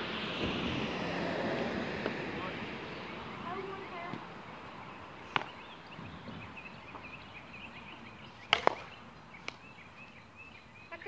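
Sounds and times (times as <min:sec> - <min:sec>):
plastic ball bat cracks: 0:05.3 - 0:05.6, 0:08.4 - 0:09.6.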